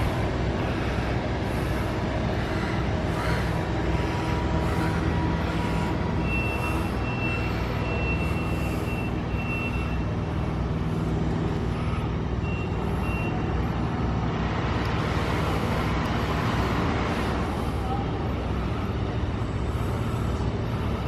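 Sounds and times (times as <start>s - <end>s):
heavy machinery engines running: 0.0s - 21.0s
backup alarm beeping: 6.2s - 10.2s, 12.4s - 13.4s.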